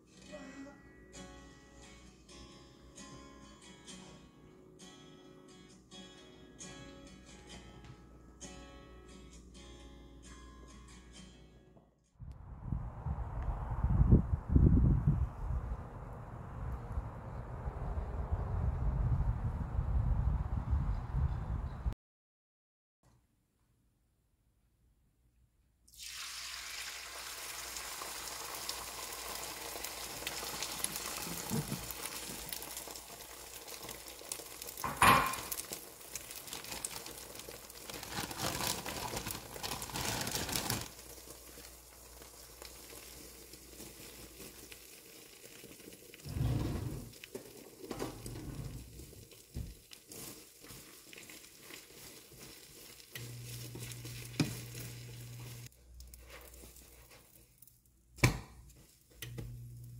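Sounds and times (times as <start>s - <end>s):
eggs sizzling in a pan: 25.9s - 46.3s, 47.0s - 59.9s.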